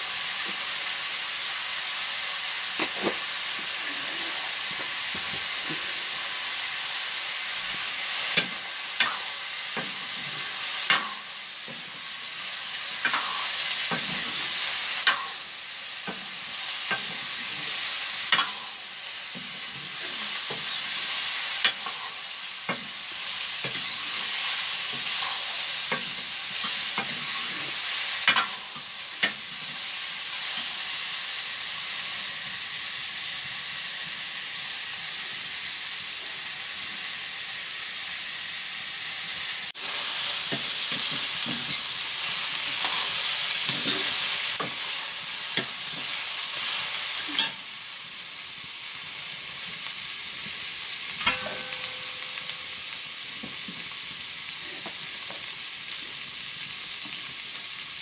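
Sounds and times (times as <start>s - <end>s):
vegetables sizzling in wok: 0.0s - 58.0s
spoon clinking against metal: 51.2s - 52.3s
metal spoon scraping pan: 51.2s - 52.5s.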